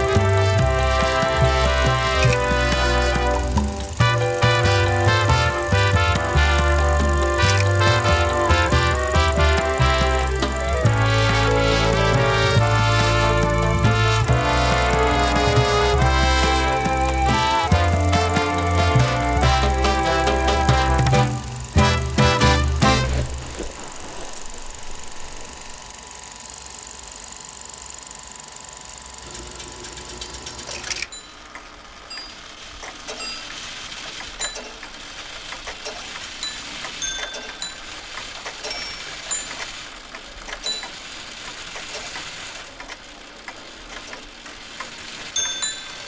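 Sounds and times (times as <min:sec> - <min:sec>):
mechanical ticks with ringing: 0:29.2 - 0:46.0.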